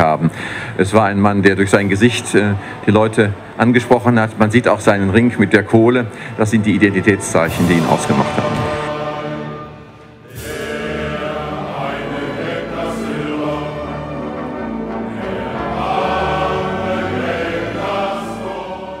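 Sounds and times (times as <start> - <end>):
men singing a hymn-like song: 10.3 - 19.0.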